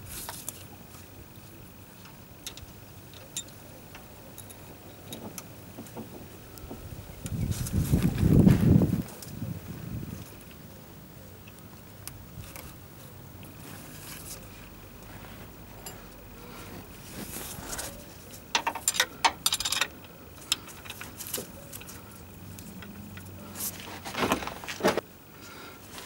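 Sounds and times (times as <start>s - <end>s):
clicks and metallic rattles: 17.8s - 23.4s.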